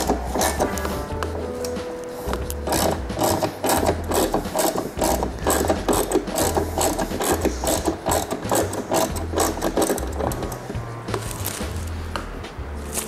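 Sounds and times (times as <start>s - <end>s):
hand ratchet clicking: 0.0s - 1.0s, 2.3s - 11.6s.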